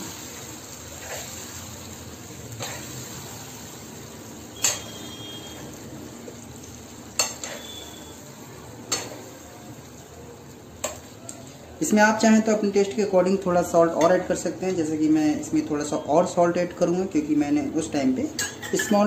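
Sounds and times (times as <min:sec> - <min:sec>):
chicken sizzling in a pan: 0:00.0 - 0:12.2
spoon clinking against pan: 0:04.6 - 0:05.1, 0:07.2 - 0:07.8, 0:18.4 - 0:19.0
metal spoon stirring: 0:06.6 - 0:08.1.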